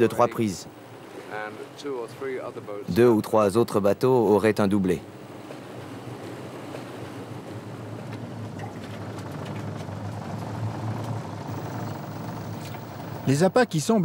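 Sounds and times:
boat engine droning: 5.0 - 14.0.

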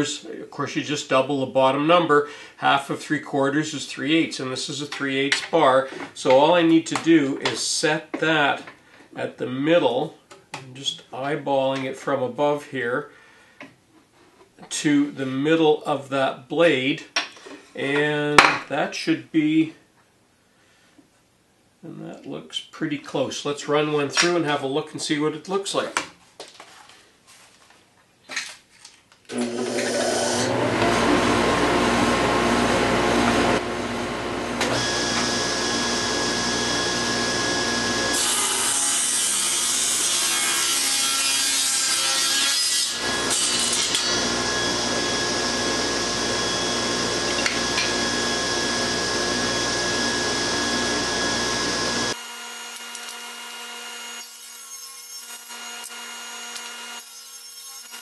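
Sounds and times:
table saw ripping boards: 28.3 - 31.5, 34.6 - 58.0
saw motor hum: 29.3 - 40.1, 42.8 - 58.0.

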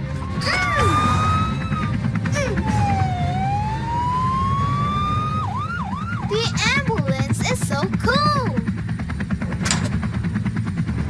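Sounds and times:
cartoon siren wailing: 0.1 - 6.6.

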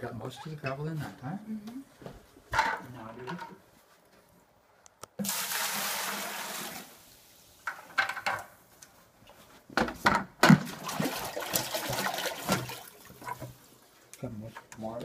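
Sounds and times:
water and gravel pouring: 5.2 - 7.1, 10.8 - 13.2
short splashes: 10.5 - 13.4.

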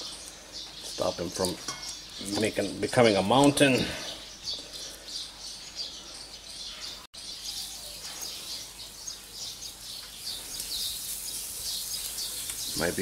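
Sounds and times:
small birds chirping: 0.0 - 13.0
meat sizzling on a grill: 7.4 - 13.0.

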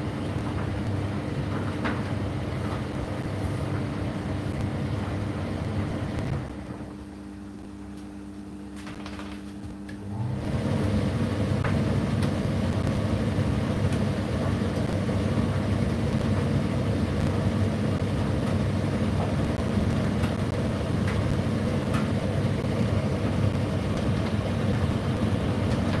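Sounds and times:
tumble dryer humming: 0.0 - 26.0.

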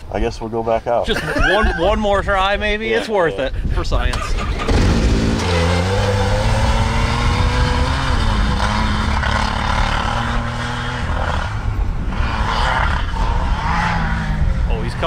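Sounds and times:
engine revving hard: 4.3 - 15.0.

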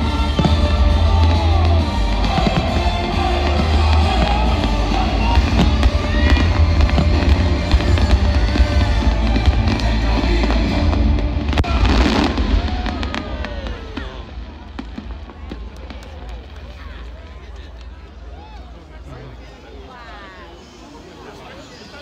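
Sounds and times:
loud music with heavy bass: 0.0 - 12.2
fireworks bursting and crackling: 0.0 - 18.3.

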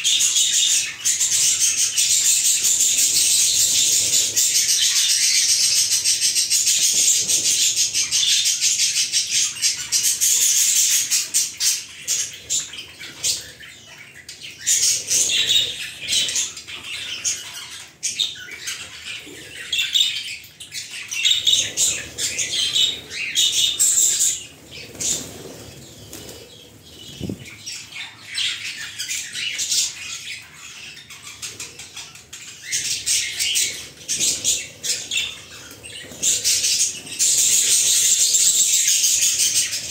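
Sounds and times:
birds chirping: 0.0 - 39.9
wings fluttering: 21.5 - 28.0.

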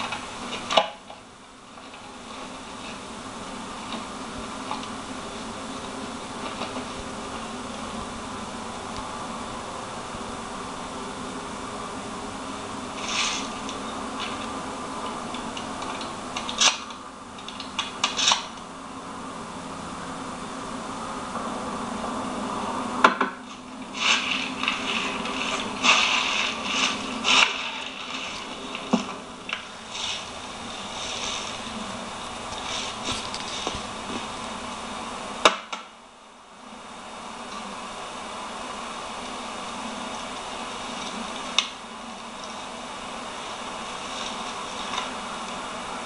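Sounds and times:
faint steady low hum: 0.0 - 46.0
steady background hiss: 0.0 - 46.0
clothing rustling on camera: 23.9 - 34.4.

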